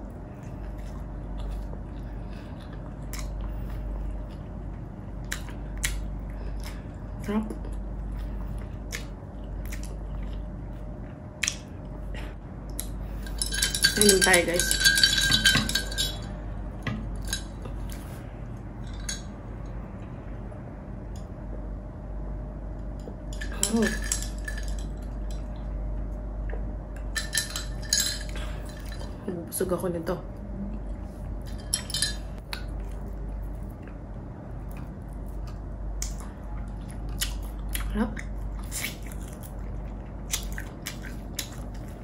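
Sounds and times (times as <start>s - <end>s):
steady low hum: 0.0s - 42.0s
utensils clinking on a plate: 13.1s - 16.3s, 23.3s - 25.5s, 27.1s - 29.2s, 31.4s - 32.4s.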